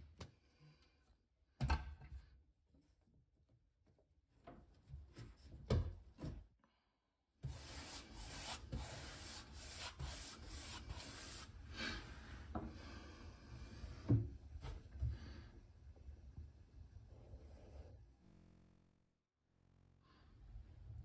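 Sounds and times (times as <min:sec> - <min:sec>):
brush bristles rubbing on wood: 0:07.5 - 0:11.5.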